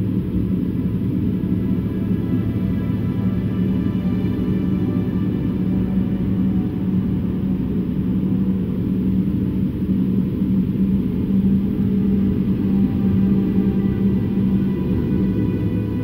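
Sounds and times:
propeller aircraft engine drone: 0.0 - 16.0.

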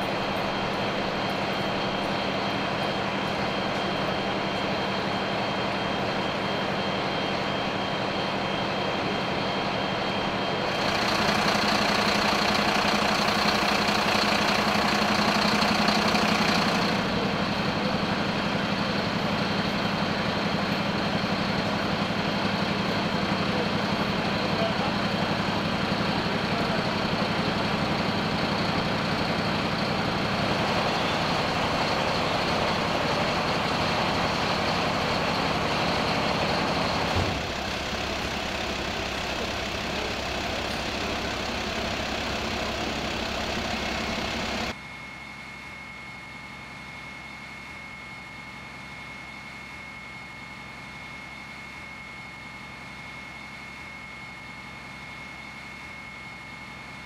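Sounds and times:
vehicle engine idling: 0.0 - 44.8.

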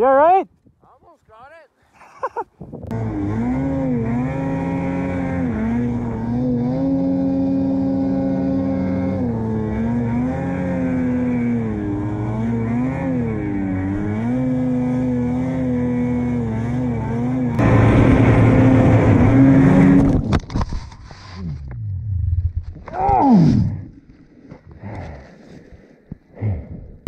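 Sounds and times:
drone propellers whining: 16.1 - 20.5.

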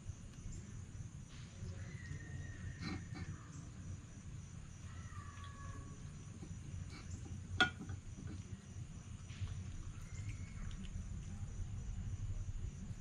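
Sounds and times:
fox chewing and crunching: 5.0 - 12.0.

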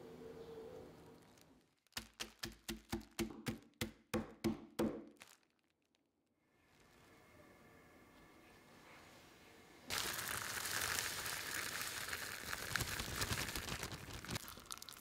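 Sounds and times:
wooden tool pounding peanuts: 1.9 - 5.2.

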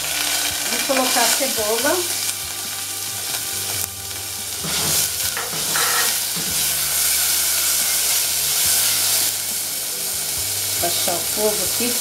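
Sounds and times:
onion and garlic sizzling in oil: 0.0 - 12.0
spatula scraping a pan: 4.6 - 9.3.

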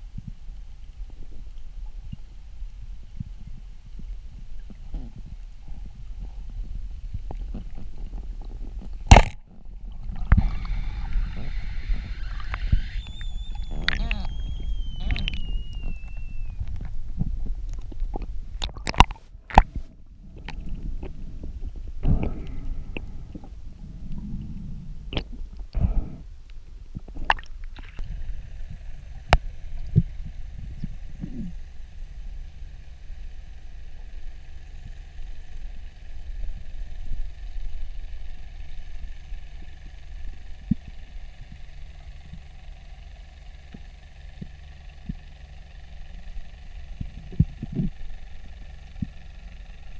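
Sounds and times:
faint hum: 0.0 - 49.9
underwater rumble of moving water: 0.0 - 49.9.

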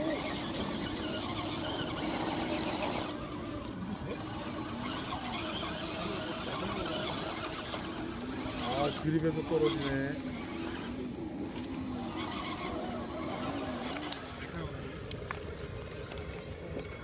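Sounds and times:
electric motor whining: 0.0 - 17.0.

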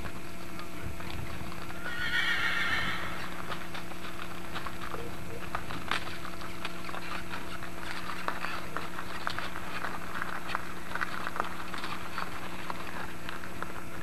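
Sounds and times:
cart wheels on gravel: 0.0 - 14.0
horse hooves clopping on gravel: 0.0 - 14.0
steady low hum: 0.0 - 14.0.

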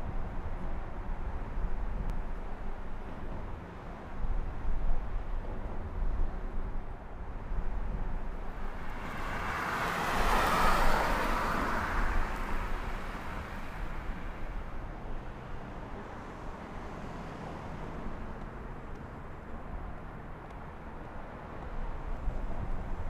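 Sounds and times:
city traffic hum: 0.0 - 23.0
car passing by: 8.4 - 14.8.

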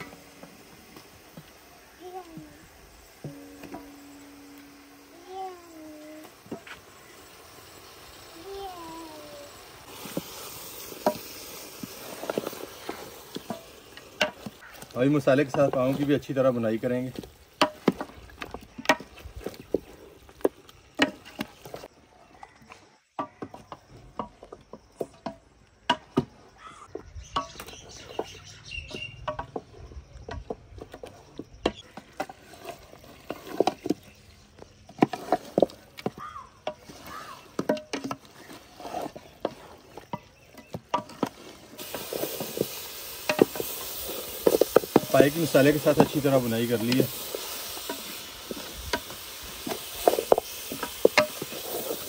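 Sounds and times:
food sizzling: 0.0 - 21.9, 40.9 - 52.0.

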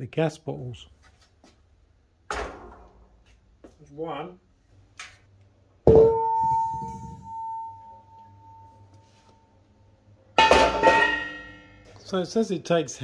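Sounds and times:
gas bottle clanking on metal: 10.4 - 11.8.

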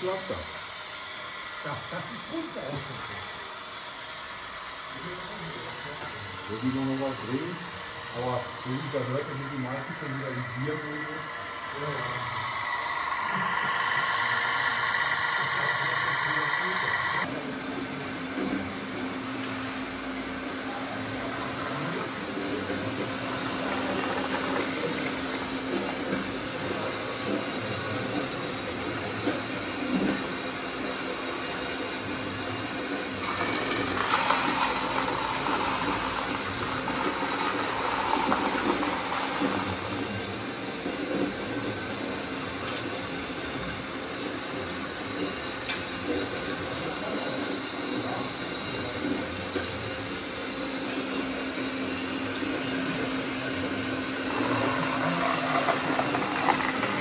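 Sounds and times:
toy truck motor whine: 0.0 - 17.4, 21.6 - 43.1, 52.3 - 57.0
model vehicles whirring and grinding: 33.2 - 40.3, 54.2 - 57.0.

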